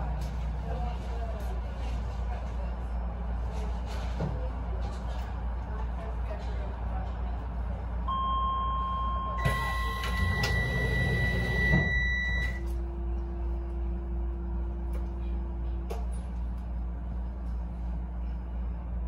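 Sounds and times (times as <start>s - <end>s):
train low rumble: 0.0s - 19.0s
two-tone electronic beeps: 8.1s - 12.6s
train doors shutting: 9.3s - 12.8s.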